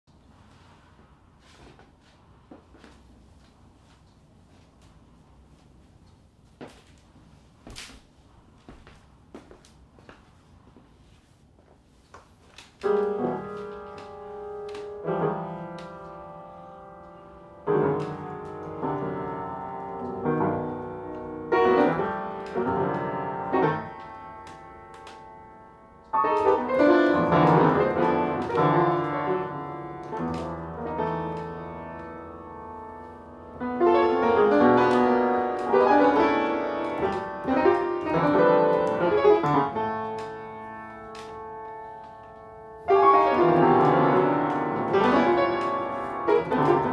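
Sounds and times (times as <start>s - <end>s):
solo piano playing: 12.8s - 46.9s.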